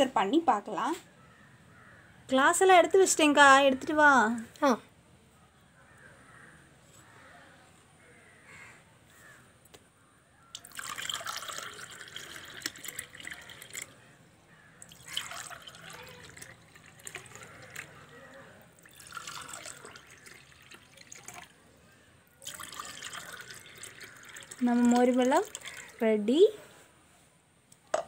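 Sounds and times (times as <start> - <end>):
liquid pouring into glasses: 10.5 - 14.0, 14.8 - 21.6, 22.4 - 26.0.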